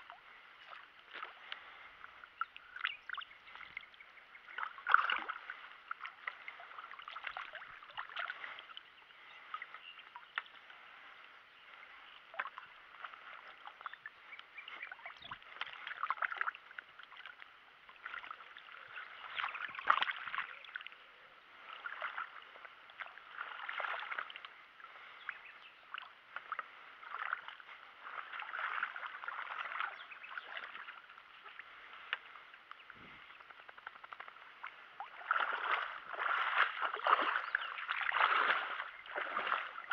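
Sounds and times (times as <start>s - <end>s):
water sloshing and splashing: 0.0s - 39.9s.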